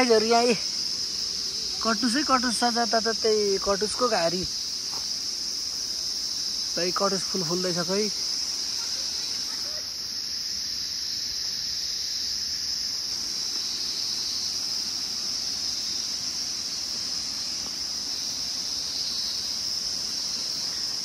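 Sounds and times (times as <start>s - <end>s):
insects high-pitched drone: 0.0s - 21.0s.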